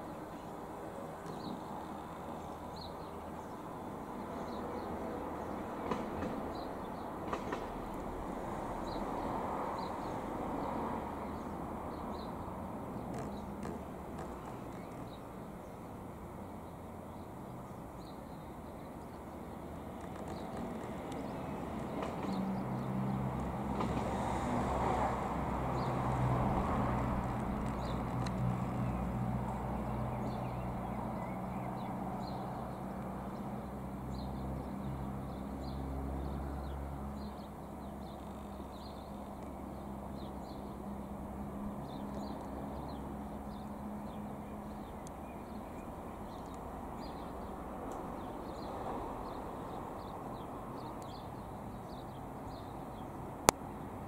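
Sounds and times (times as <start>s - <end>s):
distant jet plane rumble: 19.3s - 32.7s
faint clicks: 20.0s - 24.0s, 27.2s - 28.8s, 46.3s - 46.6s.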